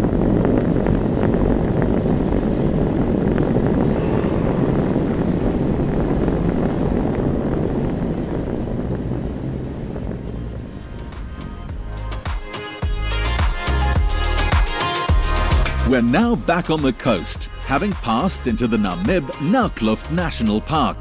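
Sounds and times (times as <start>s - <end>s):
sand dune low drone: 0.0s - 14.5s.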